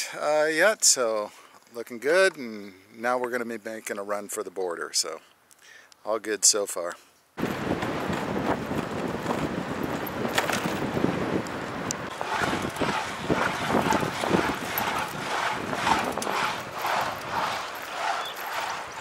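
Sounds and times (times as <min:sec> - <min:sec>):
road noise: 0:07.4 - 0:19.0
wind buffeting microphone: 0:07.4 - 0:19.0
rhythmic pulsing: 0:12.1 - 0:19.0.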